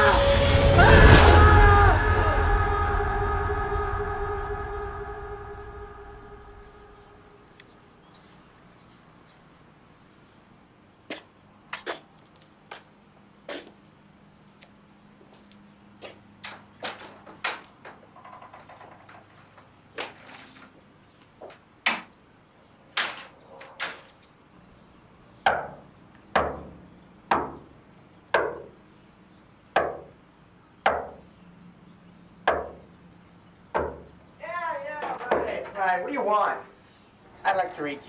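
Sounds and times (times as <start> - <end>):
footsteps on concrete: 11.1 - 18.0
fist knocking on wooden door: 26.4 - 27.7, 33.8 - 34.1.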